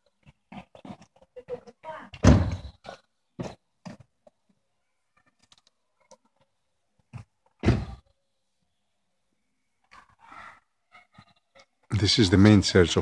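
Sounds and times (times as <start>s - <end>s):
buffeting thumps on microphone: 2.2s - 2.7s.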